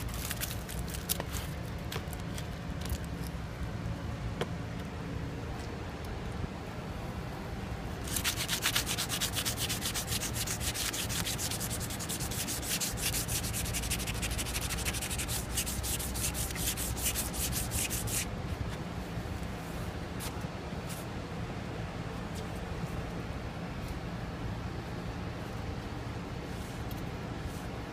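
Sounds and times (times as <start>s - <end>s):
cloth rubbing on steel tube: 8.0s - 18.3s.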